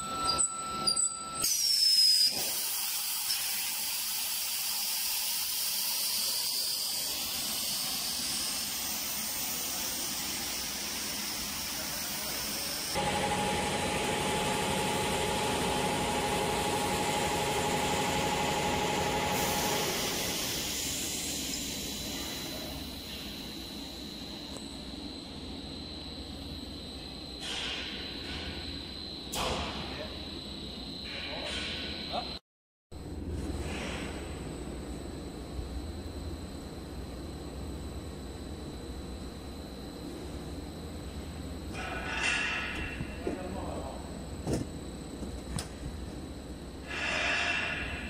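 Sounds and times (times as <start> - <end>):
motor hum with whine: 0.0 - 32.4, 33.0 - 48.0
steady machinery hiss: 2.3 - 24.6, 46.8 - 48.0
falling machine whine: 5.4 - 31.0.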